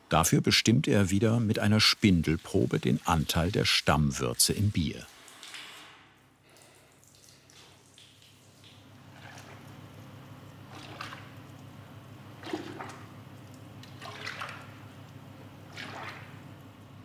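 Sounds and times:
steady low hum: 0.0s - 5.1s, 6.3s - 17.0s
beer splashing into a vat: 10.7s - 11.4s, 12.3s - 13.2s, 13.8s - 14.9s, 15.7s - 16.5s.

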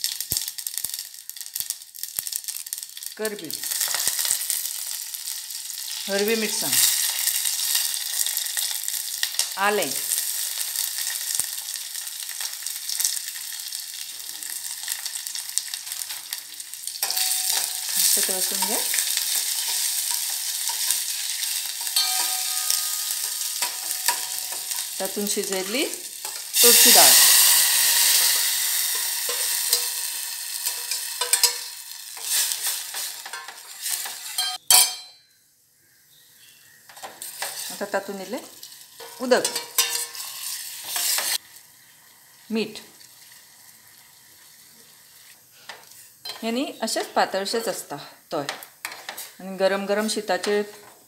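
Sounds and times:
spices sizzling in oil: 0.0s - 34.9s, 35.8s - 51.0s
metal ladle scraping pan: 17.0s - 35.0s, 37.0s - 37.9s, 38.7s - 41.4s.

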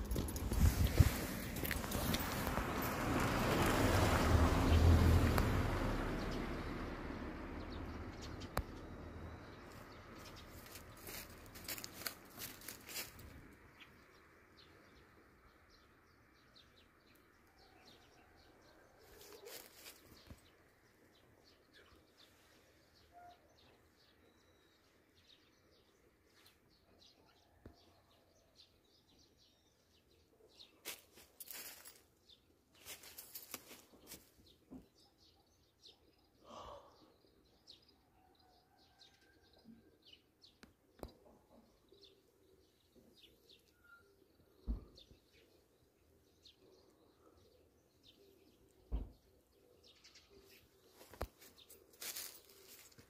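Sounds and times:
faint bird chirps: 21.7s - 25.1s, 43.3s - 45.6s.

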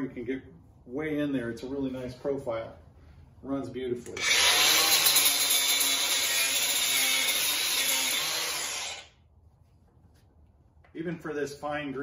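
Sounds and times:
angle grinder sanding wood: 4.2s - 9.1s.

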